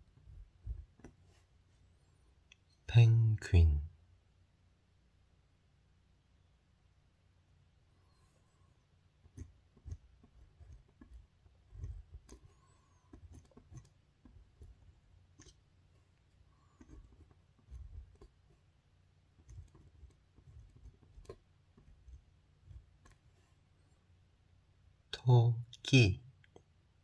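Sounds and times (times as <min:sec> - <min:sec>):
pen writing on paper: 0:09.2 - 0:15.6, 0:16.5 - 0:18.6, 0:19.3 - 0:23.5.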